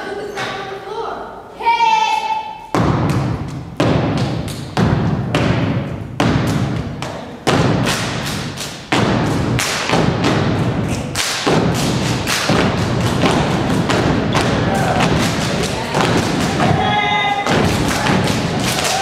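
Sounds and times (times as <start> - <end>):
stomps claps and body slaps: 2.8 - 16.8, 17.4 - 19.0.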